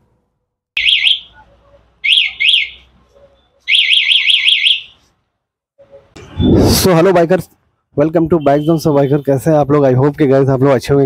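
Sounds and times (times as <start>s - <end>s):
motorcycle alarm siren chirping: 0.8s - 1.4s, 2.0s - 2.8s, 3.5s - 5.0s.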